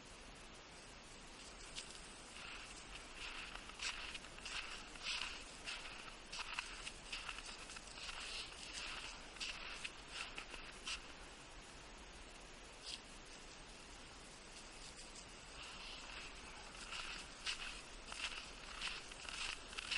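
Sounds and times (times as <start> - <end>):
crunching in snow and grass: 1.3 - 11.4, 14.3 - 19.9.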